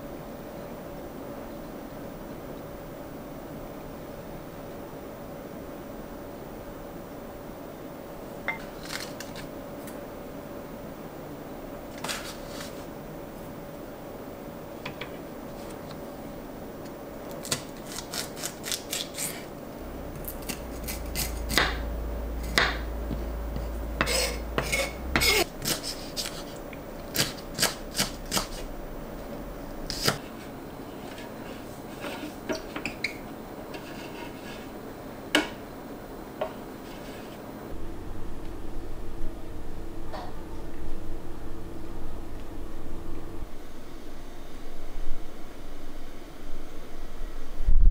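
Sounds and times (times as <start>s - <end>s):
knife chopping on wooden board: 23.6s - 26.4s.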